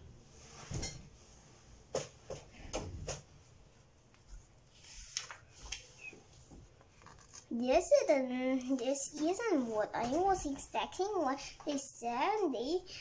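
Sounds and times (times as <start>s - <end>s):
page rustling: 4.7s - 7.5s.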